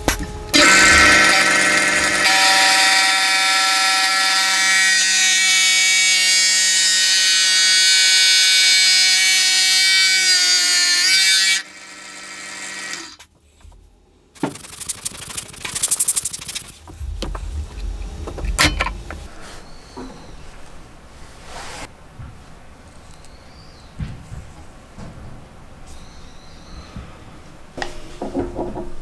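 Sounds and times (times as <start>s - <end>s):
motor winding down: 0.6s - 6.2s
drill press boring into wood: 0.6s - 13.2s.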